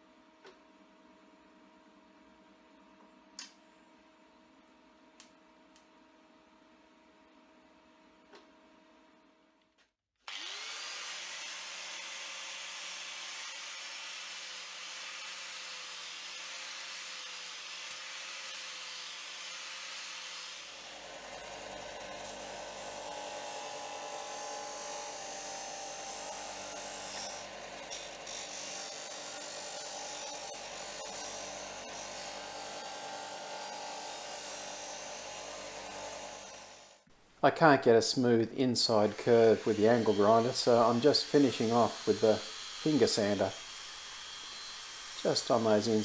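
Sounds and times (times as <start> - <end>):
angle grinder grinding steel: 10.3 - 37.0, 38.9 - 46.0
disc sander grinding steel: 10.3 - 37.0, 38.9 - 46.0.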